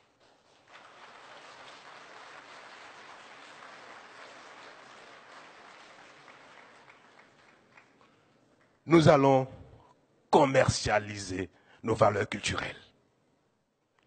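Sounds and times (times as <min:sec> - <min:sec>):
faint audience applause: 0:00.0 - 0:08.8.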